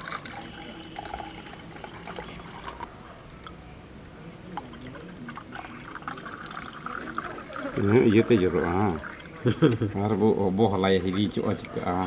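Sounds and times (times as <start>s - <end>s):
liquid pouring into a steel cup: 0.0s - 3.6s, 4.5s - 9.6s.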